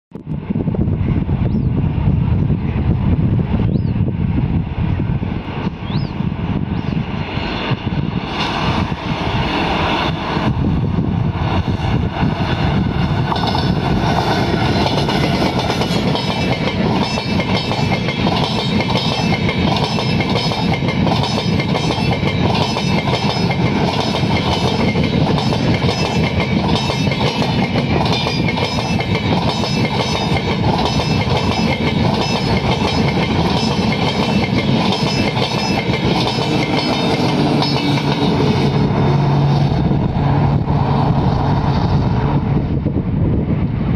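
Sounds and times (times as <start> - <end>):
rush of wheels on rail: 0.2 - 43.9
train wheels clickety-clack: 11.6 - 39.7.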